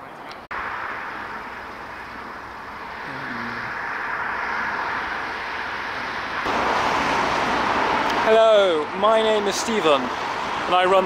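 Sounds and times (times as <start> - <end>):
vehicle passing by: 0.5 - 11.0
short low tone: 3.0 - 3.7.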